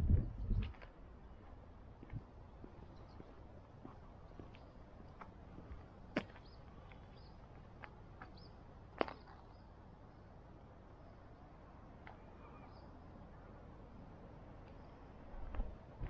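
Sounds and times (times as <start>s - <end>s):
faint bird chirps: 12.1s - 13.5s.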